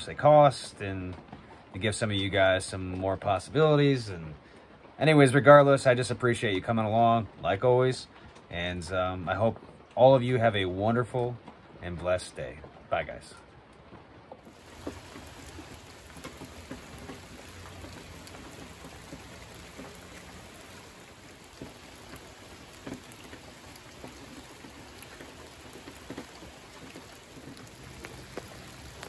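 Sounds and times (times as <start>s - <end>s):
steady rain falling: 0.0s - 29.0s
drops splashing close by: 14.5s - 29.0s.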